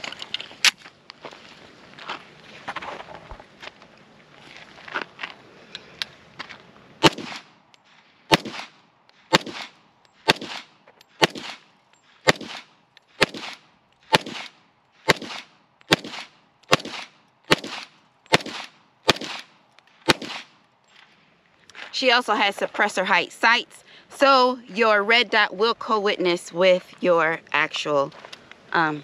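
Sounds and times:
pistol shots with echo: 0:07.0 - 0:07.5, 0:08.3 - 0:09.7, 0:10.3 - 0:11.6, 0:12.3 - 0:14.5, 0:15.1 - 0:19.5, 0:20.1 - 0:20.5.

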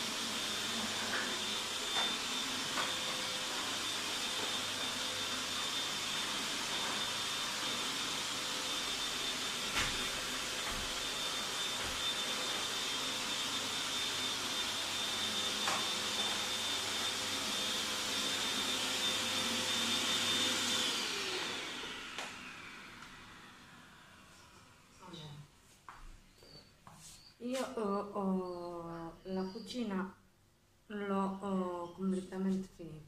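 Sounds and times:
vacuum cleaner running: 0:00.0 - 0:25.4.

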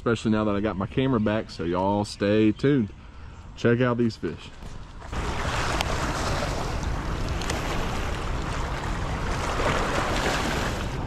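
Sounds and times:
floodwater rushing through spillway: 0:05.1 - 0:11.0.

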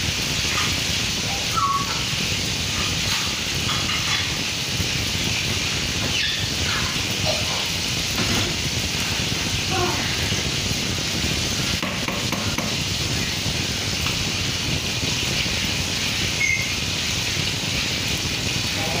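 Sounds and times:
pot simmering: 0:00.0 - 0:19.0
spatula knocking in pot: 0:11.8 - 0:12.8.

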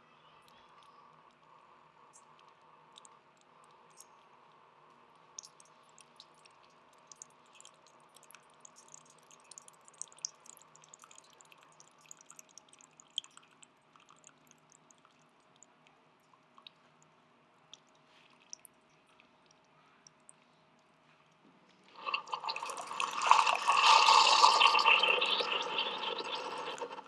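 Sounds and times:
faint steady hum: 0:00.0 - 0:27.0
coffee trickling into a mug: 0:05.4 - 0:16.5, 0:21.9 - 0:27.0.

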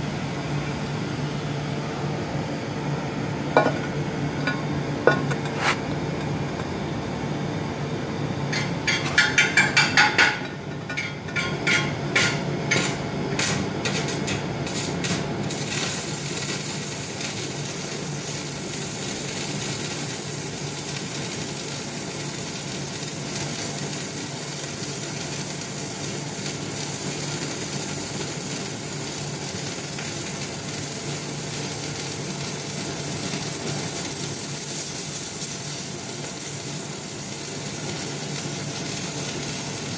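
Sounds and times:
welding arc crackling sizzle: 0:08.6 - 0:39.9.

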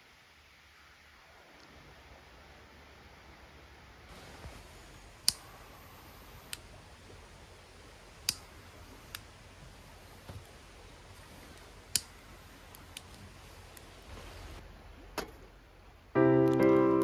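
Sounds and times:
faint steady background noise: 0:00.0 - 0:17.0
sharp clicks: 0:05.2 - 0:05.5, 0:08.2 - 0:08.5.

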